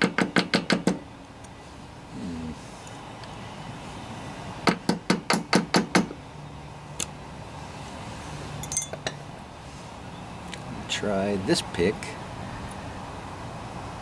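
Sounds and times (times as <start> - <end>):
metal tools rattling: 8.6 - 9.2
small metal tools clinking: 8.6 - 9.2.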